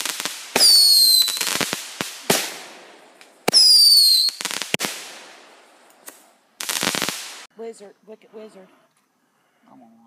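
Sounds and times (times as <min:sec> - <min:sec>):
firework whistle: 0:00.0 - 0:01.6, 0:03.5 - 0:04.8
firework hissing burst: 0:00.0 - 0:02.8, 0:06.1 - 0:07.5
firework bangs: 0:00.0 - 0:07.5.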